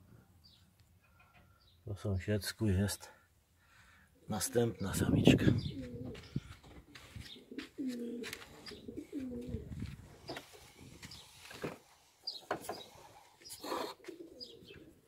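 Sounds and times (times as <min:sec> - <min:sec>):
pigeon cooing: 0:05.5 - 0:06.4, 0:07.3 - 0:09.8, 0:12.7 - 0:15.0.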